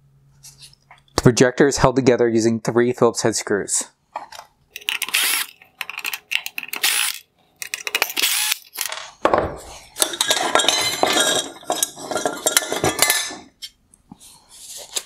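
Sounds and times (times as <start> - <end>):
metal and plastic parts clattering: 4.2 - 13.6
screwdriver clicking on screws: 4.8 - 8.9.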